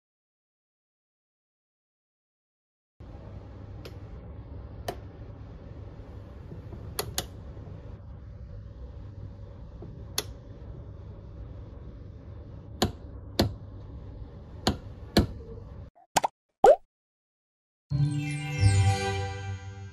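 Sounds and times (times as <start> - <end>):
low steady hum: 3.0 - 15.9.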